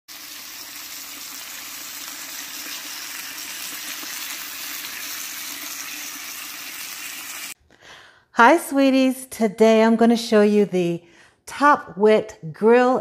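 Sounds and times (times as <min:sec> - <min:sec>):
broth boiling: 0:00.1 - 0:07.6
steaks sizzling on griddle: 0:00.1 - 0:07.6.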